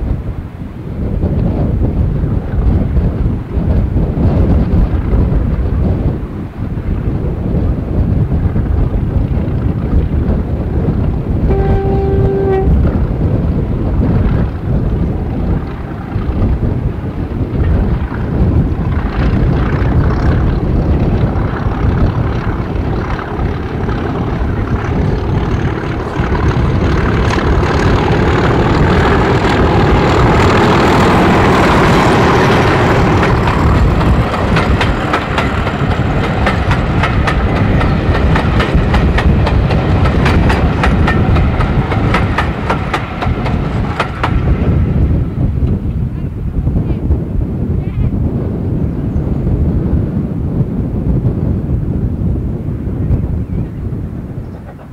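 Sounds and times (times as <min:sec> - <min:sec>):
diesel locomotive engine running: 0:01.3 - 0:50.8
wheels clicking over rail joints: 0:22.0 - 0:44.7.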